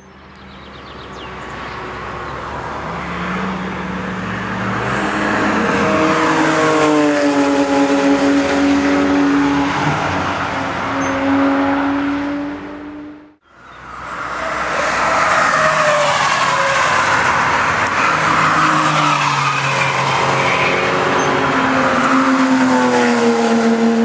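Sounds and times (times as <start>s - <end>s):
sports car engine passing by: 2.9s - 13.4s.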